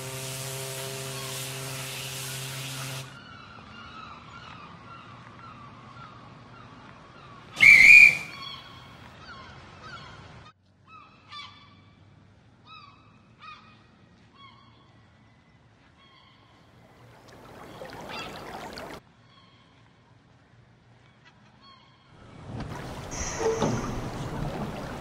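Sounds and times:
gulls calling: 7.6 - 10.1, 16.8 - 19.0, 22.2 - 25.0.

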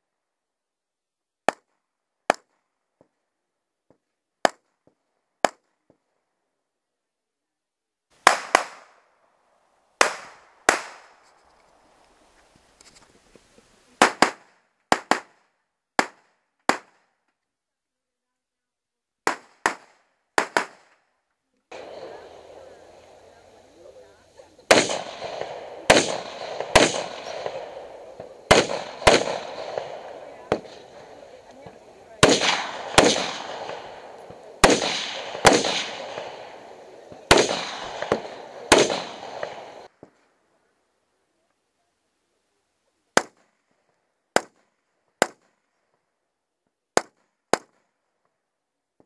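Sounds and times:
rifle shots: 8.2 - 9.0, 10.0 - 11.4, 14.0 - 15.4, 19.3 - 21.0, 21.7 - 39.9.

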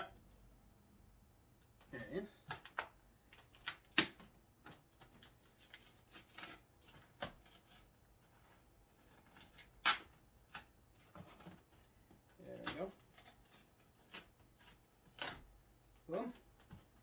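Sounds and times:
sharp cardboard snaps: 2.4 - 7.7, 9.4 - 11.4, 12.4 - 15.5
cardboard scratching and tearing: 5.2 - 7.9.

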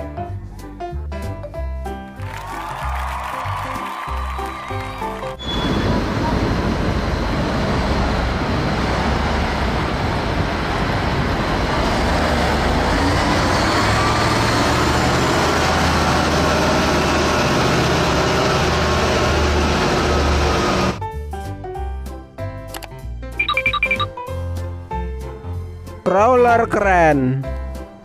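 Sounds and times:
crane diesel engine rumbling: 5.4 - 21.0.

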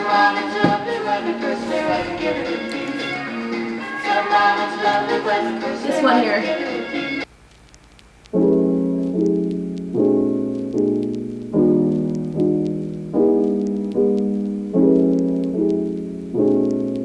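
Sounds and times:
slow piano chords: 8.4 - 17.0.

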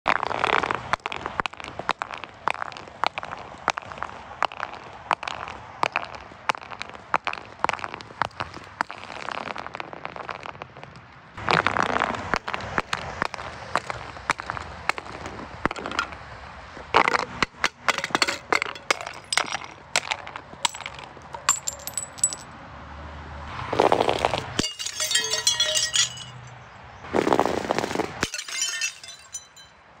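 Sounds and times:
glass jar rolling down concrete steps: 17.0 - 22.5, 24.0 - 26.5, 28.2 - 29.7
glass jar shattering: 17.6 - 22.5, 24.6 - 26.5, 28.2 - 29.8
glass shards clinking: 17.6 - 22.5, 24.6 - 26.5, 28.2 - 29.7.

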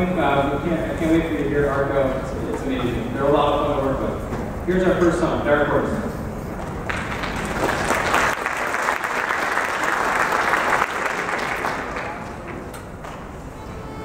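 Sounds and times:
audience applauding: 6.6 - 12.7.

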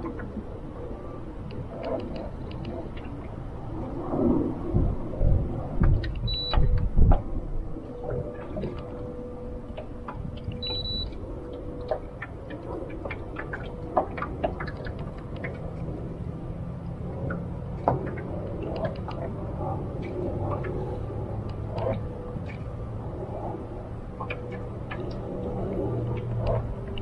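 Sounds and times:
water slapping boat hull: 0.0 - 27.0
wind buffeting microphone: 0.0 - 27.0.

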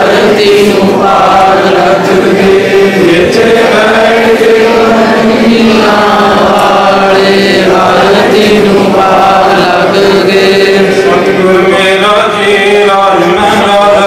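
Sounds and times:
man chanting a hymn: 0.0 - 14.0.

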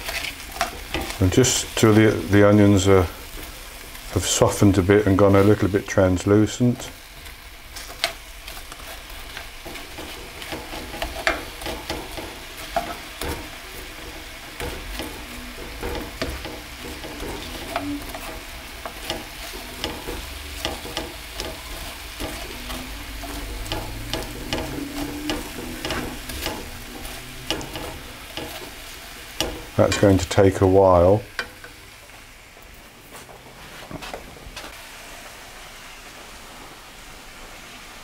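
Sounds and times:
spatula scraping a pan: 0.0 - 30.4
onions sizzling in a frying pan: 0.0 - 33.3, 34.6 - 38.0.

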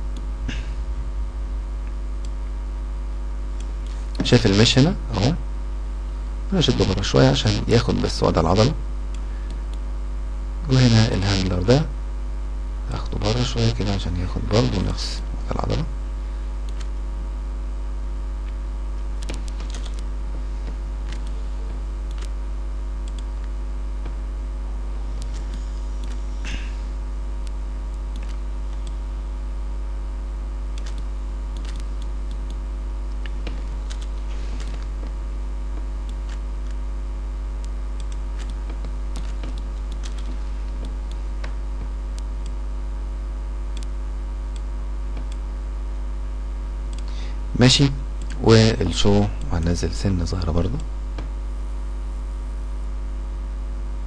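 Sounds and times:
low electrical hum: 0.0 - 54.0
computer mouse and keyboard clicks: 19.2 - 21.4, 22.1 - 22.4, 23.0 - 24.2, 25.2 - 26.2, 27.4 - 29.0, 30.8 - 35.2, 37.6 - 42.6.

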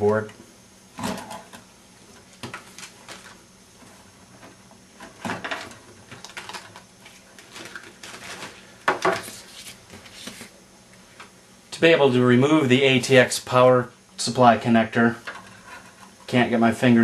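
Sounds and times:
cables rustling: 5.6 - 10.5.

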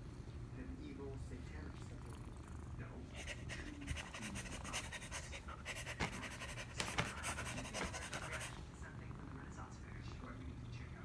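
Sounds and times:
scratchy rustling of paper and fur: 3.2 - 8.7.

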